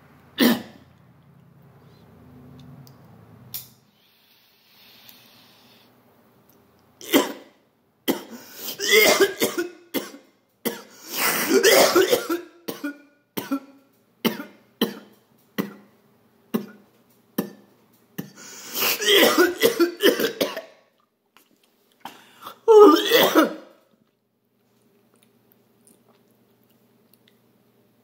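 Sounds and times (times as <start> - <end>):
man coughing hard: 7.0 - 7.5, 8.1 - 15.8, 18.2 - 20.7, 22.7 - 23.6.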